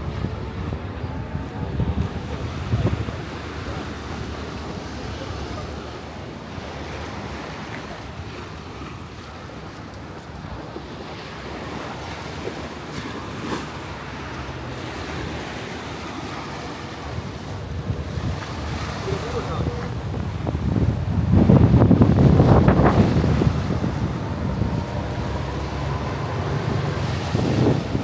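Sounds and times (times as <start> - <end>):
wind buffeting microphone: 0.0 - 28.0
wind rushing: 20.0 - 28.0.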